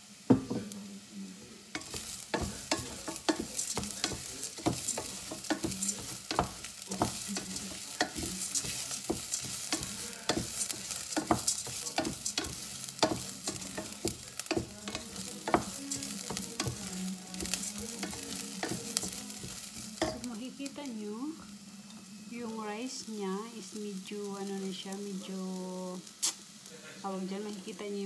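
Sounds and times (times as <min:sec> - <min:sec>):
rice sizzling: 0:00.0 - 0:28.0
wooden spatula scraping a pot: 0:01.8 - 0:20.3.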